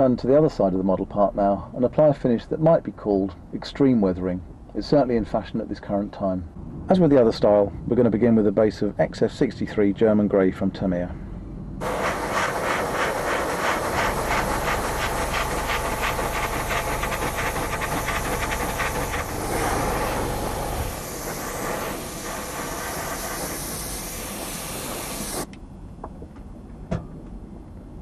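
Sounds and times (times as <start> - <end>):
airbrush hissing: 11.8 - 25.5.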